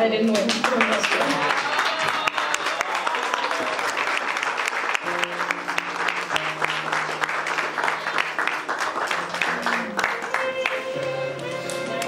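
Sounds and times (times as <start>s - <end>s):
people applauding: 0.2s - 12.0s
instrumental music with held notes: 4.4s - 12.0s.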